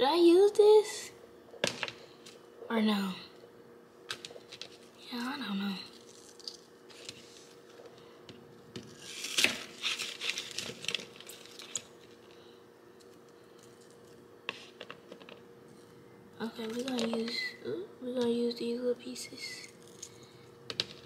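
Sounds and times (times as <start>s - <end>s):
onion skins crinkling: 5.8s - 7.9s, 8.9s - 12.4s.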